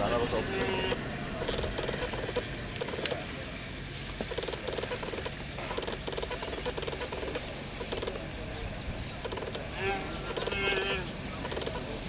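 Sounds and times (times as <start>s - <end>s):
wild dogs chattering squeaks: 0.5s - 3.2s, 4.2s - 8.3s, 9.1s - 11.9s.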